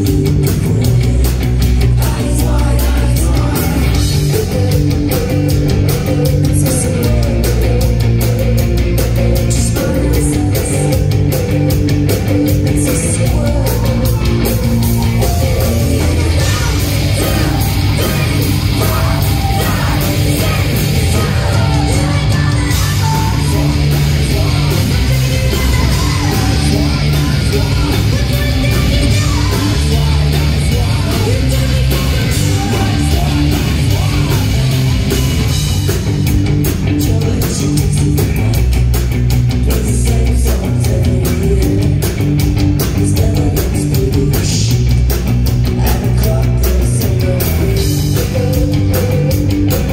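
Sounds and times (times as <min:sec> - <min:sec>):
bass guitar: 0:00.0 - 0:49.9
drums and cymbals: 0:00.0 - 0:49.9
electric guitars: 0:00.0 - 0:49.9
woman singing: 0:15.2 - 0:31.4.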